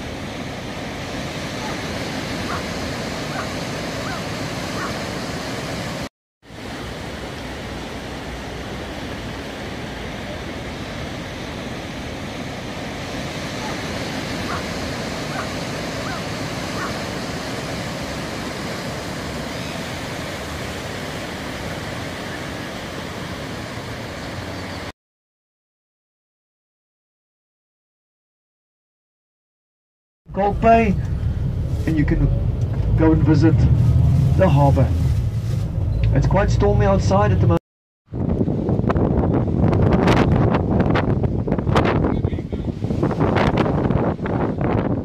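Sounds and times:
waves breaking on rocky shore: 0.0s - 24.7s.

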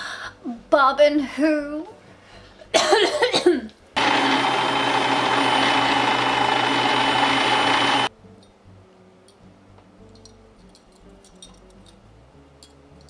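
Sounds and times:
sewing machine motor running: 4.0s - 8.1s.

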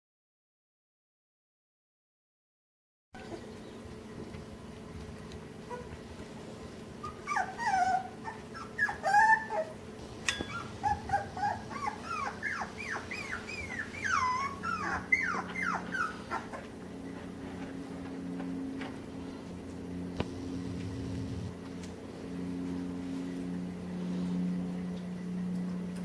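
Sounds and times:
puppies yipping and whining: 3.2s - 3.8s, 5.6s - 6.2s, 7.0s - 17.8s
steady low hum: 3.2s - 26.0s.

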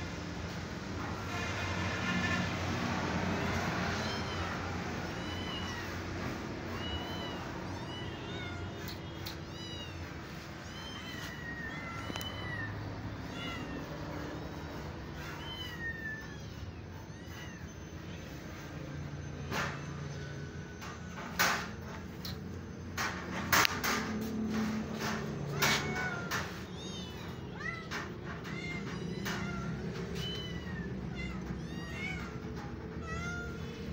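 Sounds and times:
kittens mewing: 3.2s - 18.7s, 24.5s - 33.9s.

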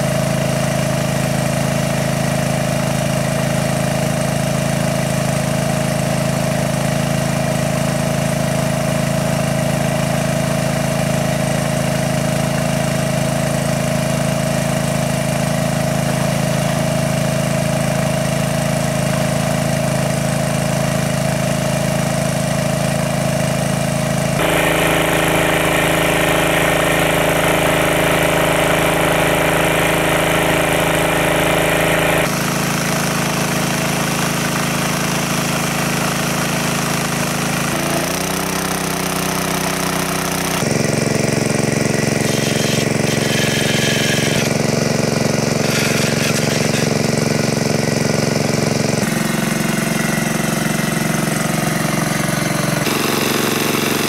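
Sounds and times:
small engine driving water pump: 0.0s - 54.0s.

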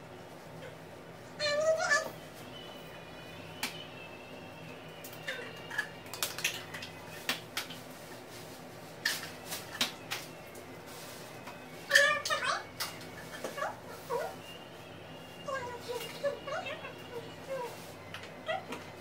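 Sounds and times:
faint steady hum: 0.0s - 19.0s
mixing bowls clicking and knocking: 5.0s - 7.9s.

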